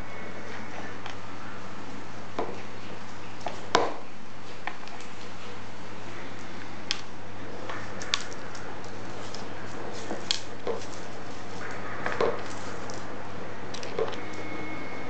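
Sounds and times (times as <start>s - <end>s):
steady low hum: 0.0s - 15.0s
paws tapping tile floor: 6.4s - 14.5s.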